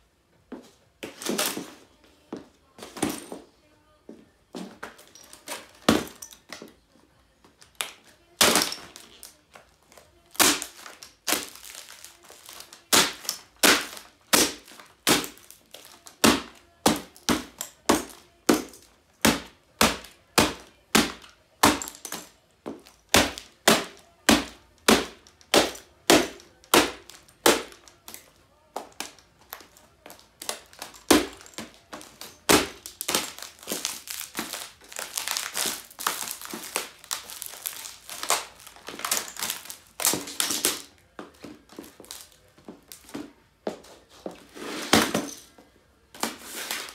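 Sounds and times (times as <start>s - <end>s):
laptop plastic cracking and crunching: 7.6s - 42.5s.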